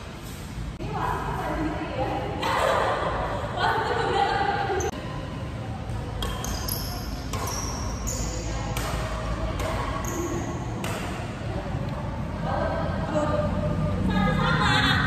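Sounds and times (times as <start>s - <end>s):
rackets hitting shuttlecock: 5.9s - 11.5s.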